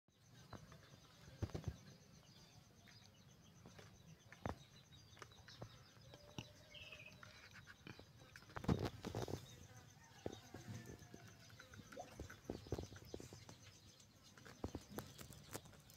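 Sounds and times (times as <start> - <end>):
faint insect chirping: 0.1 - 15.9.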